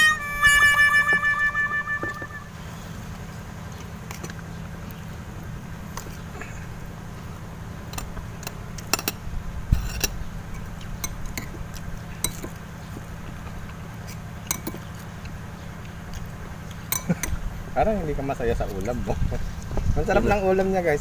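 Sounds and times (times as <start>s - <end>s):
steady low hum: 0.0s - 21.0s
cutlery clinking on plates: 14.5s - 14.8s.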